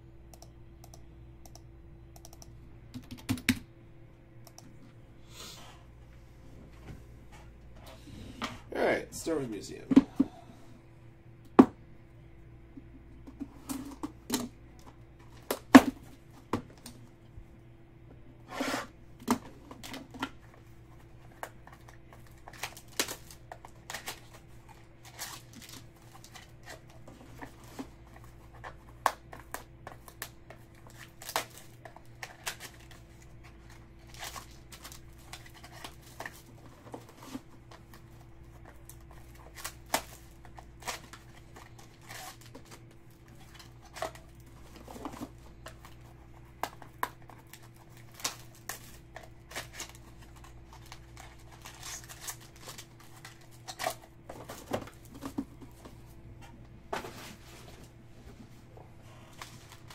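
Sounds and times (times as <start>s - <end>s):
paper and cardboard rustling: 19.7s - 59.9s.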